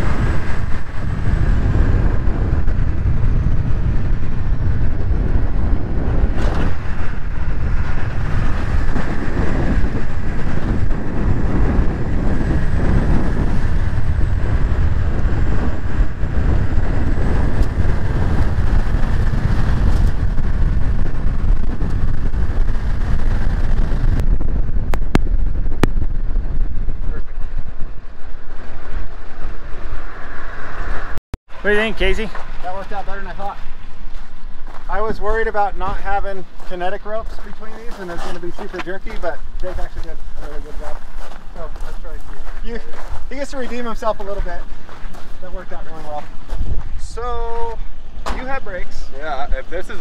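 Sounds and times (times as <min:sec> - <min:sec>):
wind buffeting microphone: 0:00.0 - 0:50.0
tyres on gravel: 0:31.6 - 0:47.2.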